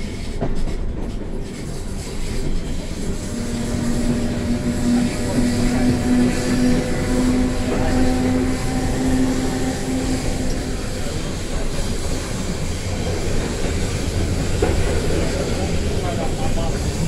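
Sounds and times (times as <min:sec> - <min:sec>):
train wheels rumbling on track: 0:00.0 - 0:17.0
electric motor hum: 0:02.9 - 0:11.7.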